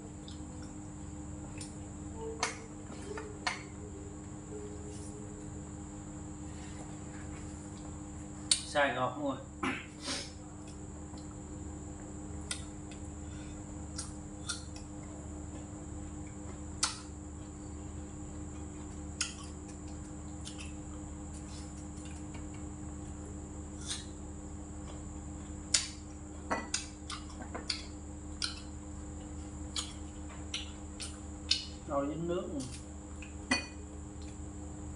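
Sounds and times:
steady background hum: 0.0s - 34.9s.

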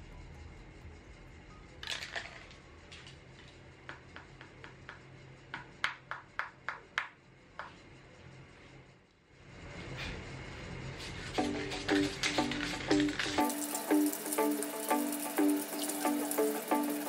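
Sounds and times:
spray can ball clinking: 11.4s - 17.0s.

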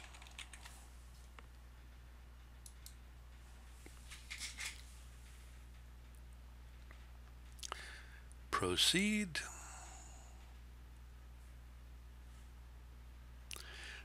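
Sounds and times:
computer keyboard and mouse clicks: 0.0s - 0.8s, 2.6s - 3.0s
low steady hum: 0.0s - 14.0s.

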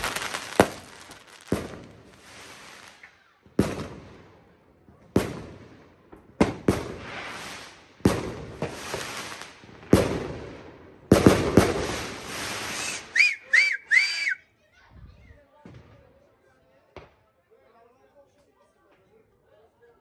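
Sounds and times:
fireworks banging and crackling: 0.0s - 13.6s, 15.6s - 16.2s.

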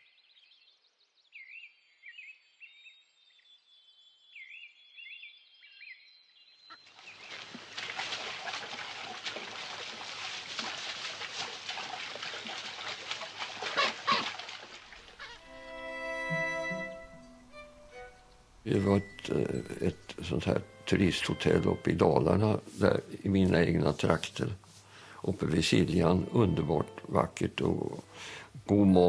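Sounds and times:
running water: 6.8s - 29.0s.

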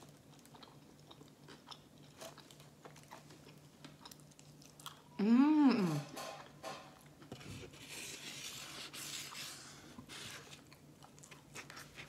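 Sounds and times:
chewing with wet mouth sounds: 0.0s - 5.2s, 10.6s - 12.0s.

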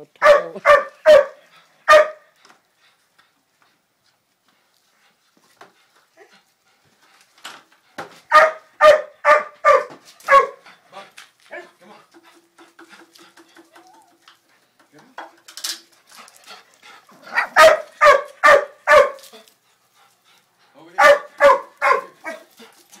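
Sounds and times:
dog barking: 0.2s - 2.3s, 8.3s - 10.6s, 17.3s - 19.3s, 21.0s - 22.5s
dog yipping: 0.2s - 2.3s, 8.3s - 10.6s, 17.3s - 19.3s, 21.0s - 22.4s.

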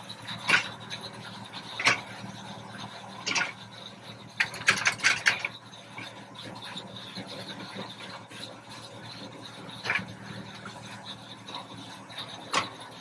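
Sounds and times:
tractor diesel engine running: 0.0s - 13.0s
sharp mechanical clacks: 4.4s - 6.1s.

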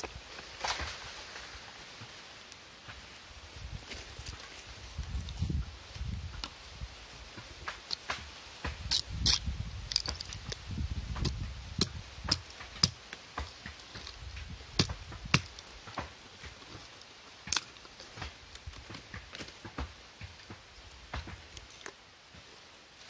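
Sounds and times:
machete chopping wood: 7.6s - 16.6s.

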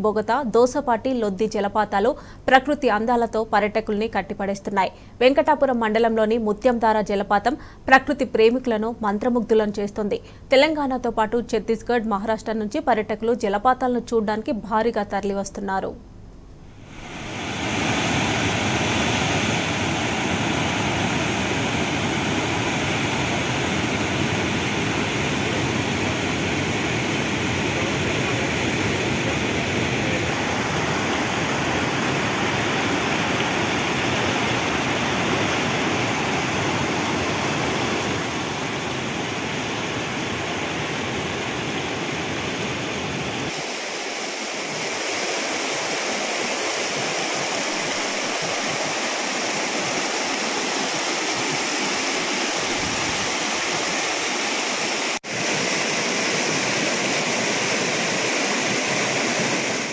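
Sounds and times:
waterfall rushing: 16.8s - 59.9s.

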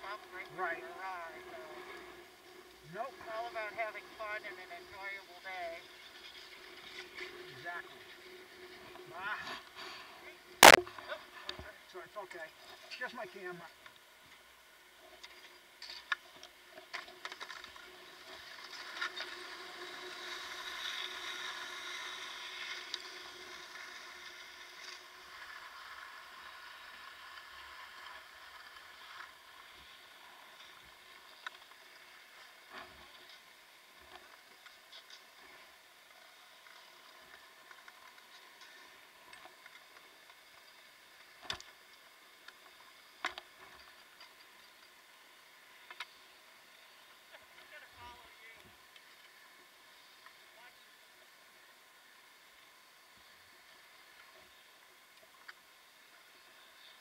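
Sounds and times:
skis sliding on packed snow: 0.0s - 13.7s, 15.4s - 44.8s.

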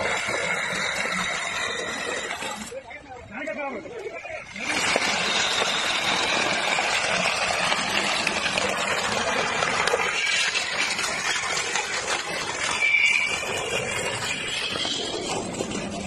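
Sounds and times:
glass bottles crunching and breaking: 4.5s - 16.0s.

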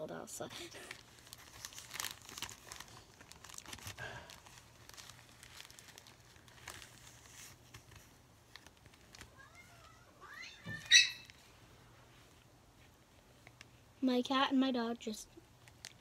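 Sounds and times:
plastic bag crinkling: 0.5s - 10.0s, 15.5s - 16.0s.

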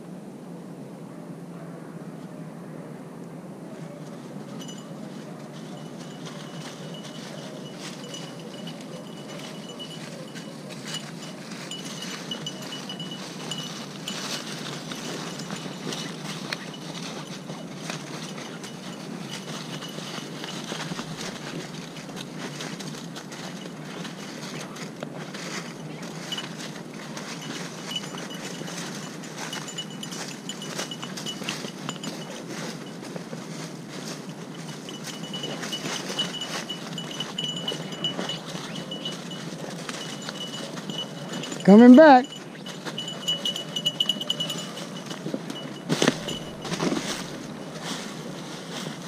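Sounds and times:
thin high tone: 4.4s - 24.8s, 34.0s - 48.3s.

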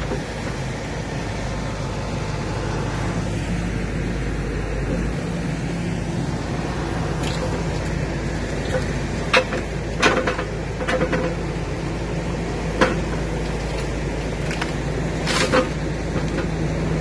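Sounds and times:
diesel engine running: 0.0s - 17.0s
branches cracking and breaking: 7.1s - 9.0s, 13.2s - 15.8s.

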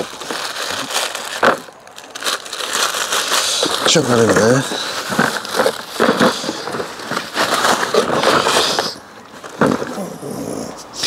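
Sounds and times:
plastic bags crinkling: 0.0s - 10.4s.

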